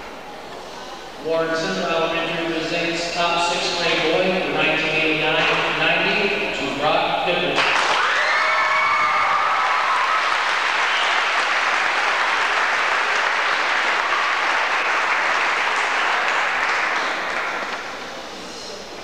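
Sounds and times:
audience applauding: 7.6 - 18.2.

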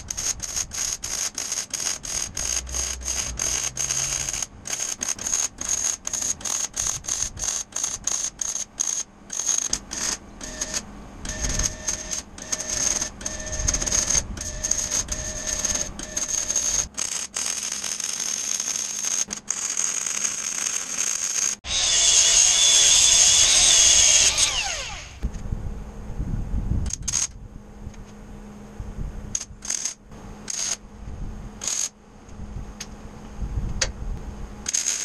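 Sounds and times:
welding arc crackling: 0.0 - 25.2, 34.7 - 35.0.

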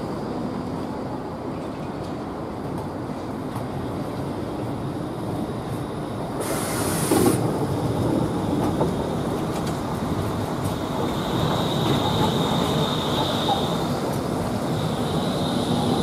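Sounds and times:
tram wheels rumbling on rails: 0.0 - 16.0
short high hiss: 6.4 - 7.4.

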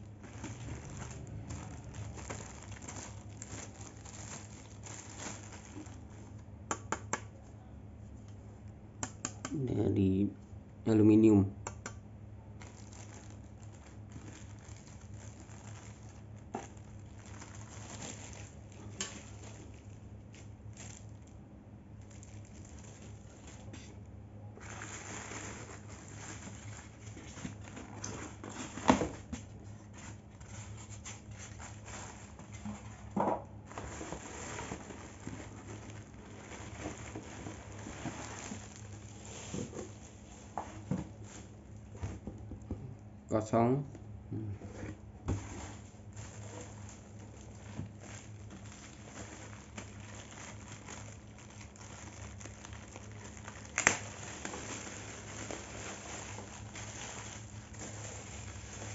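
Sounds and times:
foam and cardboard rustling: 0.0 - 6.4, 12.6 - 21.3, 24.6 - 42.4, 44.7 - 58.9
plastic bag crinkling: 0.0 - 6.5, 12.5 - 24.0, 24.6 - 33.0, 33.6 - 42.0, 45.4 - 58.9.

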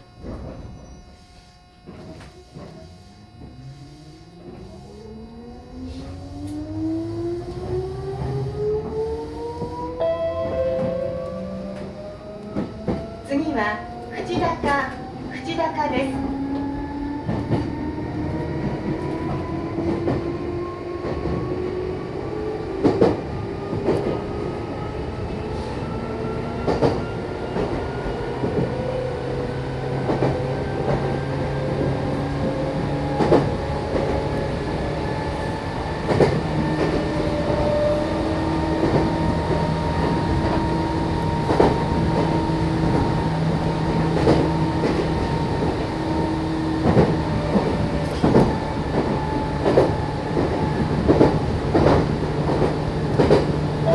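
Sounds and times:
traction motors humming: 0.0 - 50.1
train rumble: 0.0 - 53.9.

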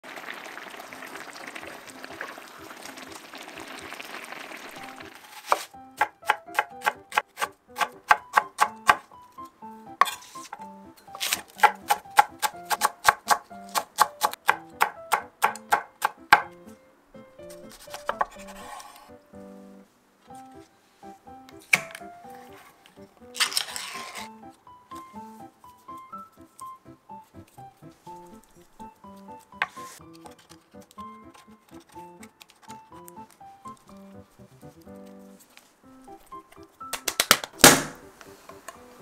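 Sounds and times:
light background music: 4.8 - 39.0
knife slicing onion on wooden board: 5.3 - 9.0, 10.0 - 16.8, 17.4 - 19.1, 23.4 - 24.3, 29.6 - 33.1.

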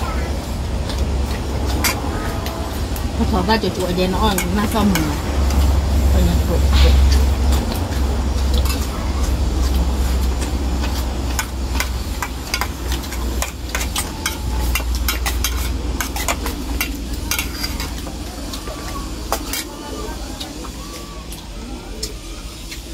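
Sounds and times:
steady low rumble: 0.0 - 19.2
spoons clinking on steel bowls: 11.3 - 18.7.

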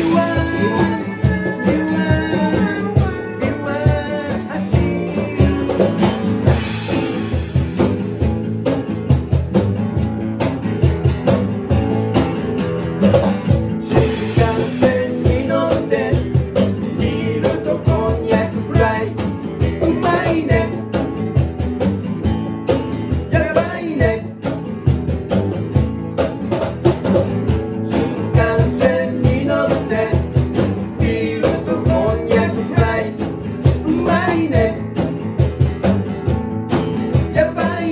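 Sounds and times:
person singing: 0.0 - 6.3, 13.8 - 20.9, 23.3 - 24.4, 27.9 - 30.4, 31.0 - 35.0, 37.4 - 37.9
cajon beat: 0.0 - 37.9
two guitars playing: 0.0 - 37.9.

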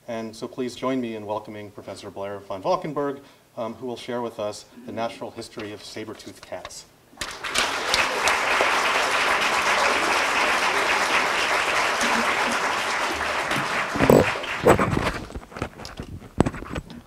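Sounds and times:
audience applauding: 7.2 - 15.4.

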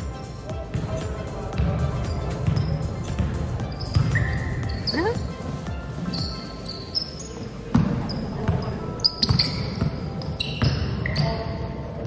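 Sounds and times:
sneakers squeaking: 0.0 - 12.0
basketball bouncing: 0.6 - 5.3, 7.7 - 11.0.

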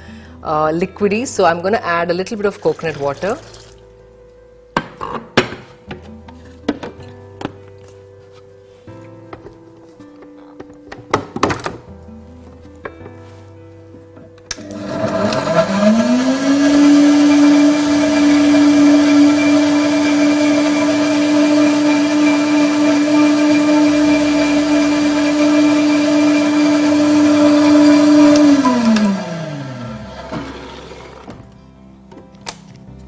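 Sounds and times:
blender motor whirring: 14.6 - 31.3.

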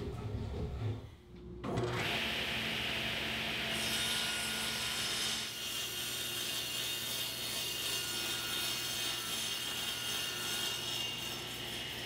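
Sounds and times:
table saw cutting plywood: 1.8 - 12.0.

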